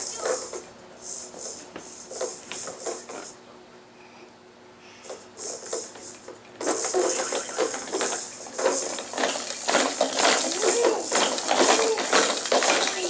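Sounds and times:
plastic toys rattling and clacking: 0:00.0 - 0:03.4, 0:05.0 - 0:13.0.

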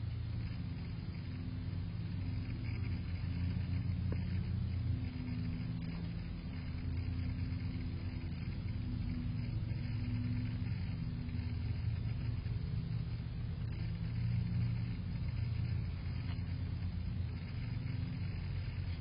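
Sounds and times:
faint droning hum: 0:00.0 - 0:19.0
low mechanical rumble: 0:00.0 - 0:19.0.

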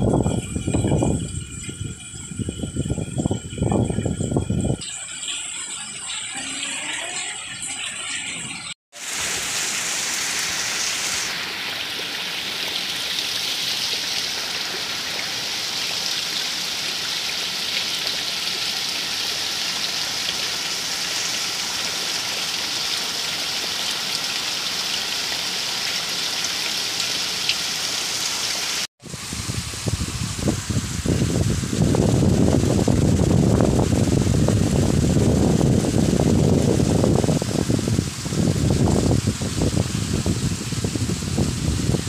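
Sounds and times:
heavy rain falling: 0:09.0 - 0:42.0.

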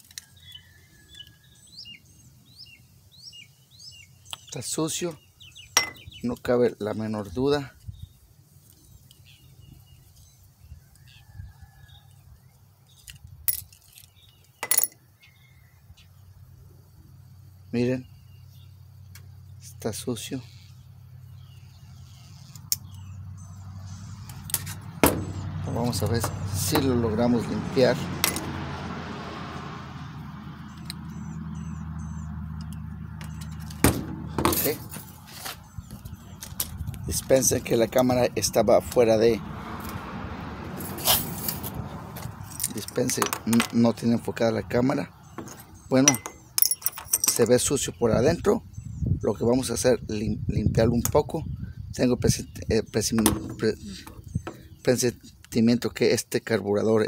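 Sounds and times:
small parts clicking and clinking: 0:13.0 - 0:15.0, 0:45.5 - 0:47.5.

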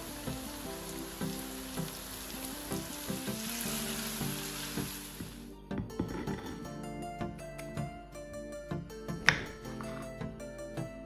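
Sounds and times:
mushrooms sizzling in oil: 0:00.0 - 0:05.5
light background music: 0:00.0 - 0:11.0.

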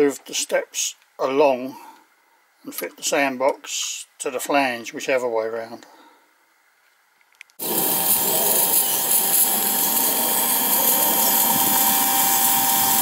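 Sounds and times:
hissing mechanical whir: 0:07.6 - 0:13.0.

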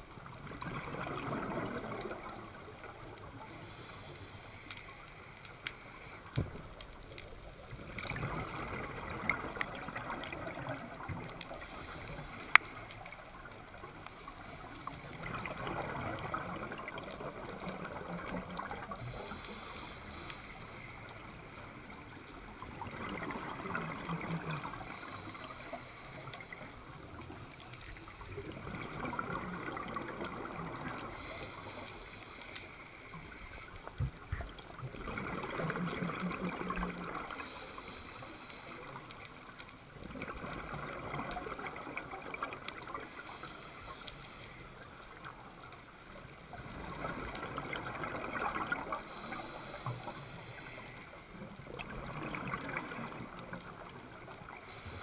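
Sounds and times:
gurgling exhaled bubbles: 0:00.0 - 0:03.5, 0:07.6 - 0:12.3, 0:13.0 - 0:19.7, 0:21.1 - 0:25.8, 0:28.0 - 0:31.4, 0:33.2 - 0:37.6, 0:38.9 - 0:43.1, 0:46.1 - 0:50.3, 0:51.3 - 0:54.7
regulator hiss: 0:31.1 - 0:33.7, 0:49.0 - 0:51.2.

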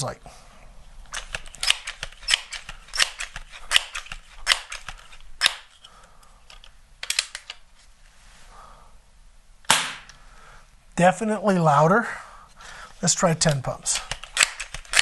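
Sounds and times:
air pistol pump strokes: 0:01.1 - 0:05.9, 0:13.9 - 0:15.0.

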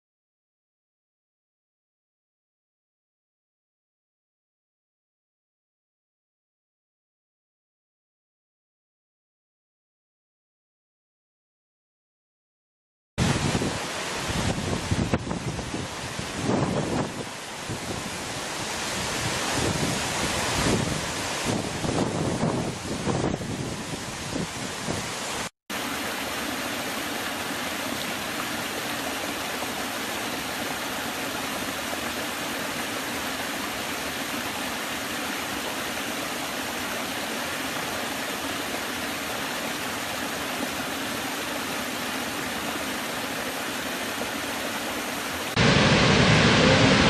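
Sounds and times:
wind buffeting microphone: 0:13.2 - 0:25.2
deep rush of huge waterfall: 0:13.2 - 0:47.0.

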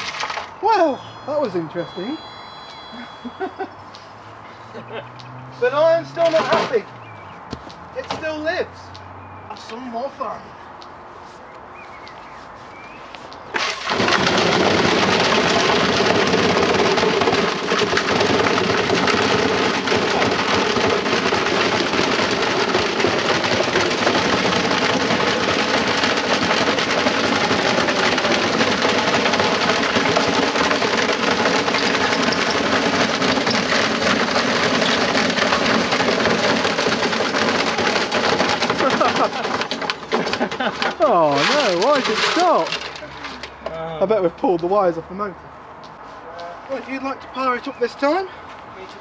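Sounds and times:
washing machine clattering and banging: 0:06.1 - 0:06.8, 0:13.8 - 0:43.0.

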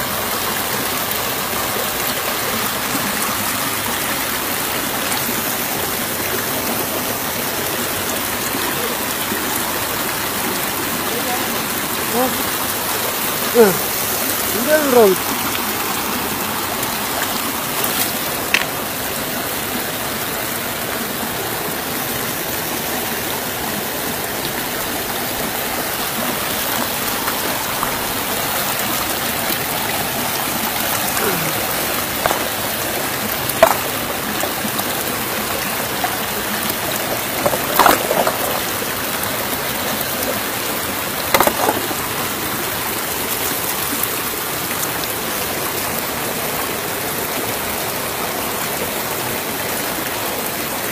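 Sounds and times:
river water rushing over rocks: 0:00.0 - 0:50.9
stones knocking in water: 0:17.0 - 0:18.8, 0:31.1 - 0:39.0, 0:41.3 - 0:42.3.

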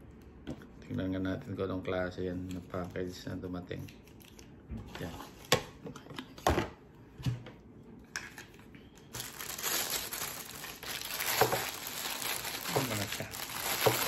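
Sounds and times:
plastic packaging crinkling: 0:09.0 - 0:14.0.

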